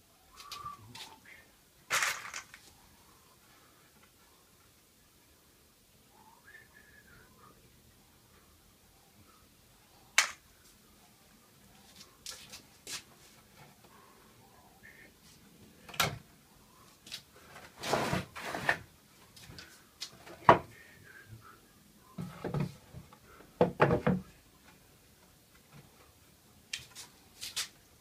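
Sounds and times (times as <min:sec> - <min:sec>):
wood sliding on wood: 0:17.7 - 0:18.9.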